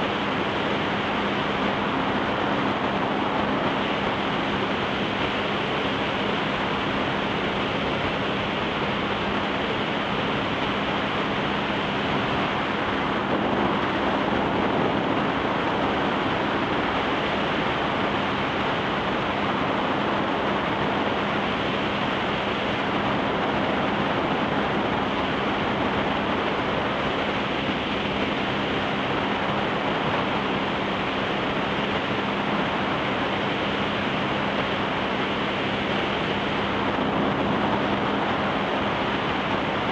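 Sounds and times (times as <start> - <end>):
boat engine droning: 0.0 - 39.9
rush of water spray and wind: 0.0 - 39.9.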